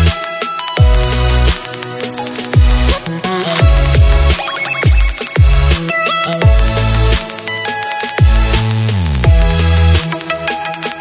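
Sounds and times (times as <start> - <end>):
electronic music synth line: 0.8 - 11.0
deep bass drum hits: 3.6 - 4.4.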